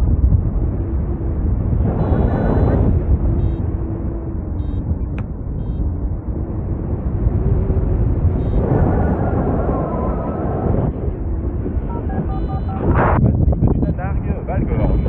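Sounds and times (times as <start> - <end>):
wind buffeting microphone: 0.0 - 15.0
short faint high beeps: 11.9 - 13.0.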